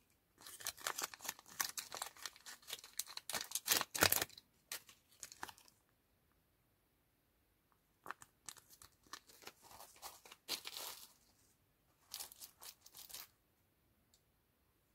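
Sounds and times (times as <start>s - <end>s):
paper sheet crinkling: 0.4s - 5.8s, 8.0s - 11.4s, 12.0s - 13.4s.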